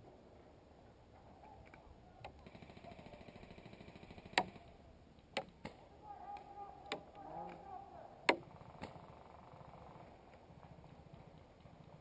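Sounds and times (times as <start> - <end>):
automatic airsoft fire rattle: 2.4 - 4.7.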